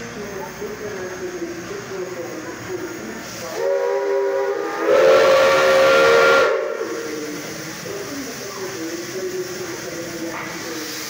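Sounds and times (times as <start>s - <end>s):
hissing steam: 0.0s - 11.0s
steam locomotive whistle: 3.3s - 7.2s.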